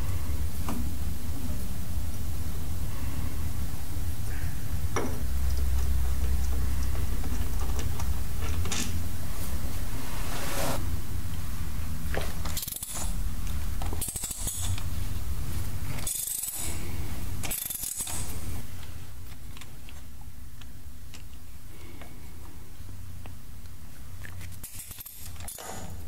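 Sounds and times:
steady low hum: 0.0 - 26.0
socket wrench ratcheting: 14.0 - 14.8, 17.4 - 18.3
metal clinking: 16.0 - 16.8.

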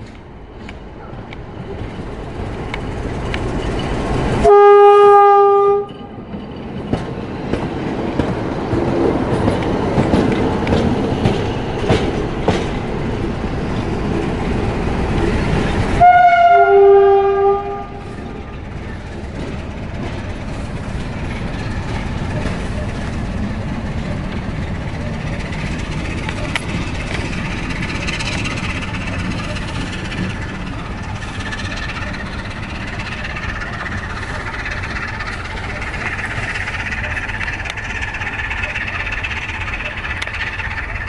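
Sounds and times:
diesel locomotive rumbling: 0.0 - 41.0
locomotive horn: 4.4 - 6.1, 16.0 - 18.1.

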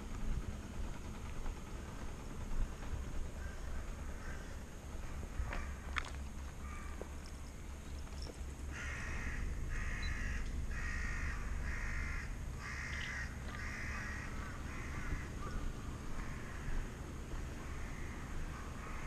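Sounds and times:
steady low rumble: 0.0 - 19.0
crow cawing: 3.4 - 4.6, 5.4 - 5.8, 6.6 - 7.1, 8.7 - 16.9, 17.5 - 19.0.

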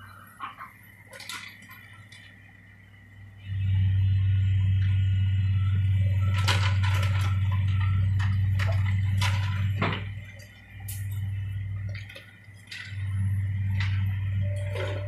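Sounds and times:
excavator diesel engine drone: 0.0 - 15.0
debris cracking and crunching: 6.3 - 14.0.

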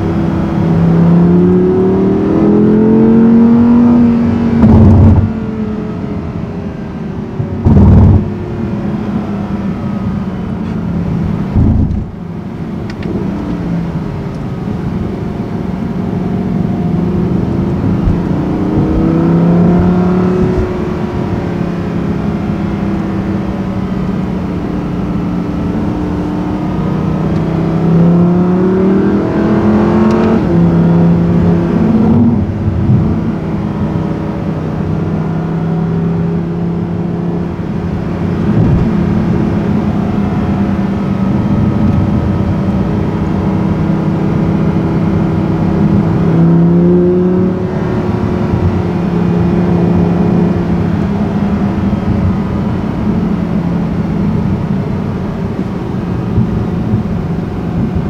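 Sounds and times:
car engine revving inside cabin: 0.0 - 58.0
short loud thump: 11.5 - 12.2.

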